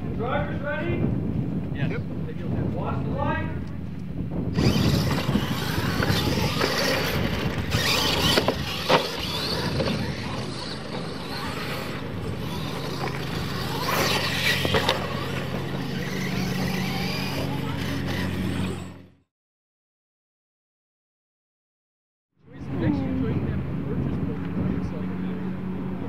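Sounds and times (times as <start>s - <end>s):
tyres churning dirt: 4.5s - 19.1s
toy truck motors whining: 4.5s - 19.3s.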